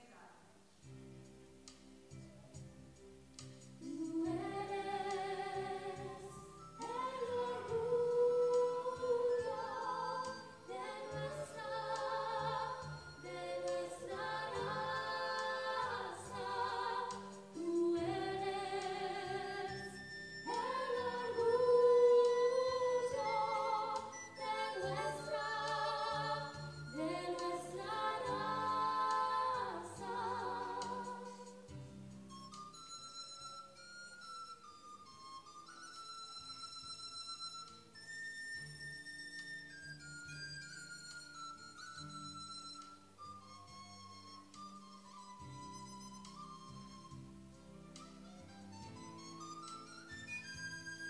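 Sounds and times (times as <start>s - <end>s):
two women singing: 3.8s - 31.8s.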